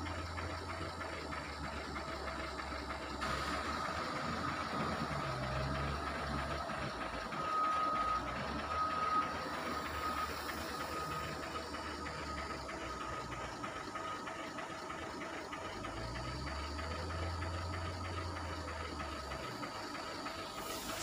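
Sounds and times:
heavy diesel engine rumbling: 0.0 - 21.0
reversing alarm beeping: 2.6 - 14.5.

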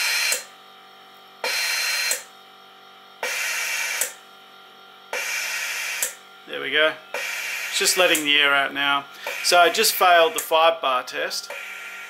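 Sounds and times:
air hiss bursts: 9.2 - 10.4.

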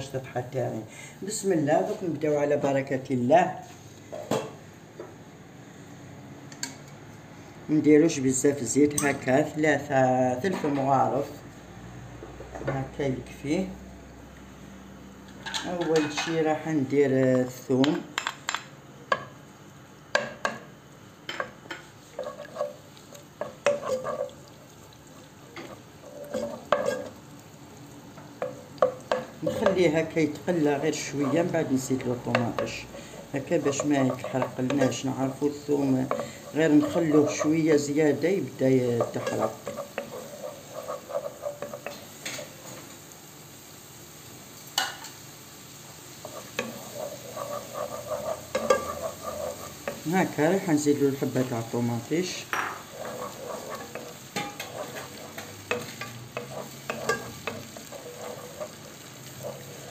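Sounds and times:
garlic sizzling in oil: 19.1 - 59.9
spoon scraping a pot: 21.4 - 24.6, 25.6 - 27.2, 30.5 - 31.7, 32.3 - 42.8, 46.2 - 59.9.

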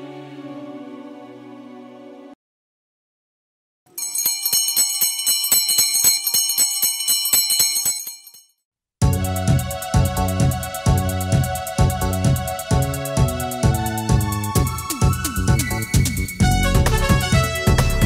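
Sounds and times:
small bells jingling: 3.9 - 8.5
instrumental music with low notes: 9.0 - 18.0.

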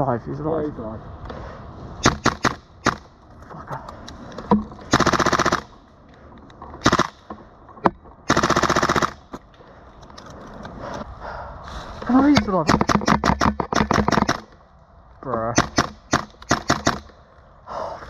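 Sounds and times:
airsoft gun full-auto bursts: 2.0 - 3.0, 4.9 - 5.7, 6.8 - 7.2, 8.3 - 9.2, 12.7 - 14.5, 15.6 - 17.1
airsoft gun single shots: 2.0 - 3.1, 12.6 - 14.5, 15.6 - 17.1.

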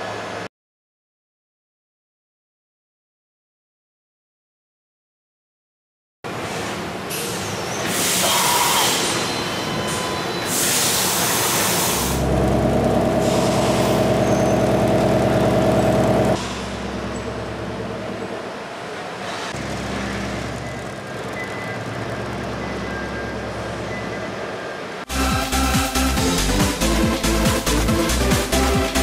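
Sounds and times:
face mill cutting steel: 7.8 - 16.6.

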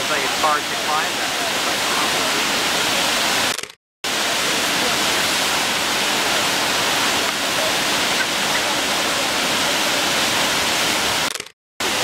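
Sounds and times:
waterfall rushing: 0.0 - 3.5, 4.1 - 12.0.

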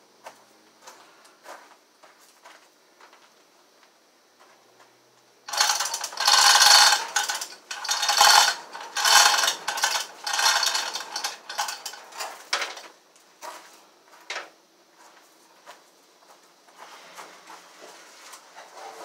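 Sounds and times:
hoist chain clattering: 5.5 - 12.9.

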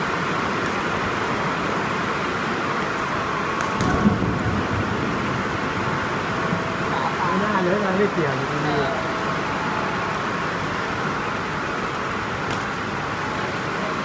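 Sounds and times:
ventilation fans hissing: 0.0 - 14.0
rackets striking shuttlecock: 3.6 - 4.1, 11.9 - 12.9.

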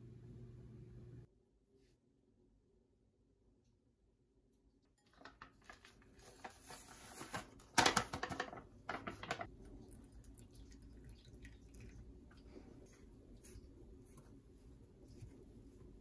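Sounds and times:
packet crinkling and rustling: 5.0 - 9.5
wooden spoon stirring dry mix: 12.0 - 16.0.

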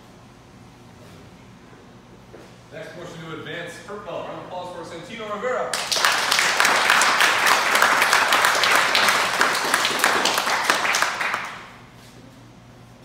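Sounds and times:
audience applauding: 5.8 - 11.8.

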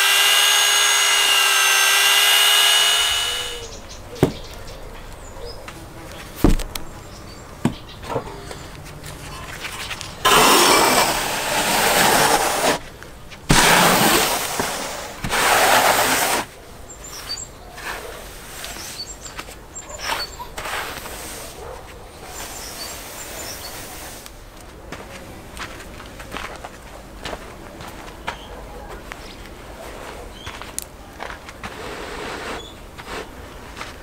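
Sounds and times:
birds chirping: 1.9 - 10.2
trowel scraping mortar: 9.4 - 12.8, 13.5 - 16.5, 20.0 - 21.6, 31.6 - 33.3.

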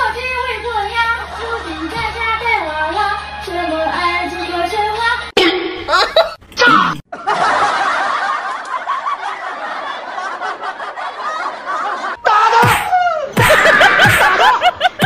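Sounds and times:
audience laughing: 7.1 - 12.2, 13.2 - 15.0.

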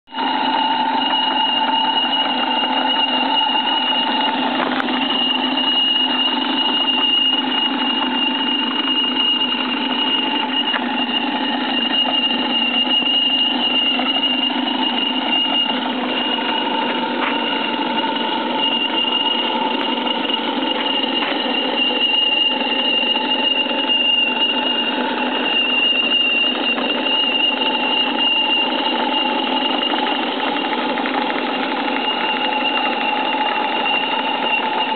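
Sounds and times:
model steam engine chatter: 0.1 - 34.9
steady high whine: 0.1 - 34.9.

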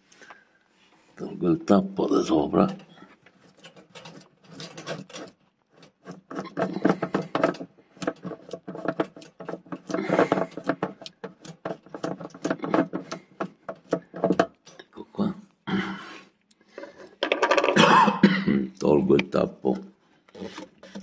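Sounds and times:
plastic cap clicking and scraping: 2.8 - 14.8, 20.3 - 21.0.

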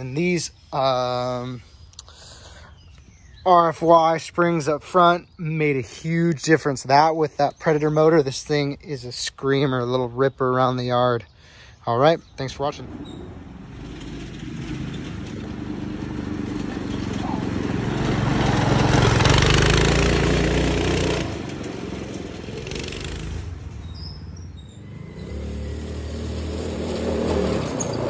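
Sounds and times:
go-kart engine at high revs: 13.6 - 23.7, 24.8 - 28.0.

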